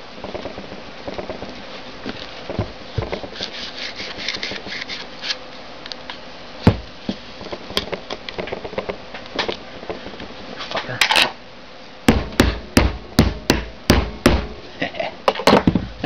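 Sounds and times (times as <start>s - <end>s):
quick scratchy rasps: 3.2s - 5.5s
sharp knock: 12.1s - 14.6s.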